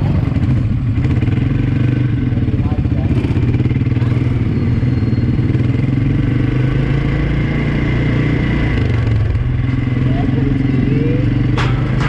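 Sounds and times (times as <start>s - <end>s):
quad bike engine running: 0.0s - 12.0s.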